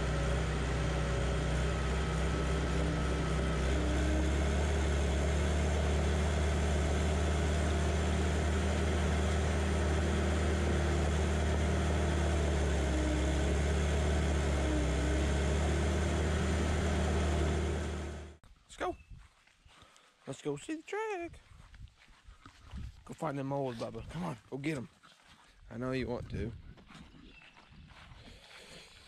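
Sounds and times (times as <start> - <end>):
bulldozer diesel engine: 0.0 - 18.4.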